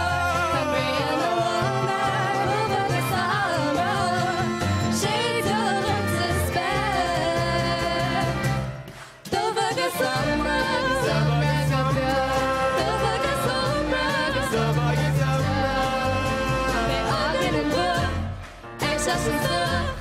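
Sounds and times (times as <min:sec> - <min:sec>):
young voices singing in harmony: 0:00.0 - 0:08.5, 0:09.3 - 0:20.0
double bass: 0:00.0 - 0:08.9, 0:09.8 - 0:20.0
fiddle: 0:00.0 - 0:08.9
accordion: 0:00.0 - 0:20.0
guitar: 0:00.0 - 0:20.0.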